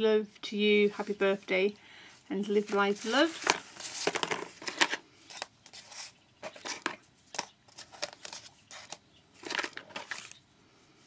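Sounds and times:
tissue paper rustling: 0:02.4 - 0:06.9.

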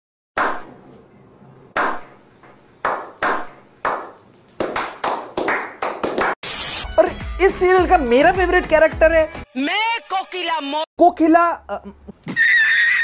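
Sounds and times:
slow hand clapping: 0:02.8 - 0:06.4.

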